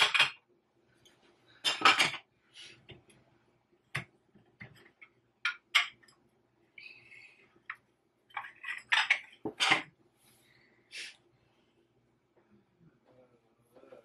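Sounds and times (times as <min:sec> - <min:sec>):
china cups and saucers clinking: 0:01.6 - 0:02.3, 0:08.3 - 0:09.9.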